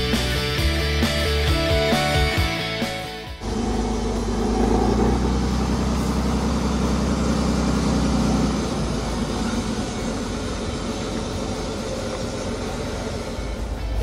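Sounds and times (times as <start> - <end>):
truck diesel engine rolling past: 3.3 - 14.0.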